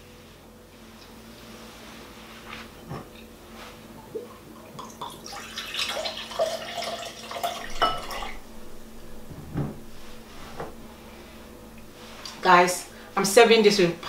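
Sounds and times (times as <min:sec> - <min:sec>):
liquid pouring into a glass: 0:04.3 - 0:08.4.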